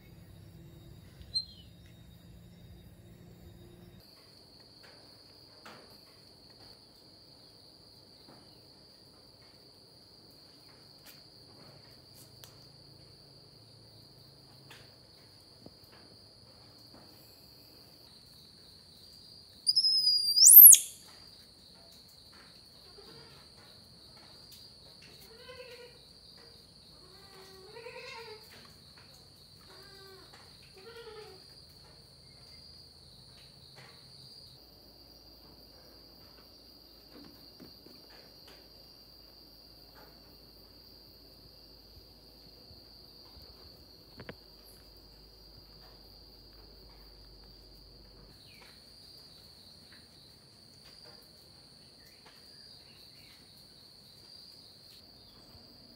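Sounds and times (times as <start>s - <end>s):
crickets trilling: 0.0s - 55.9s
faint short calls: 19.7s - 21.0s
high call rising in pitch: 19.7s - 21.0s.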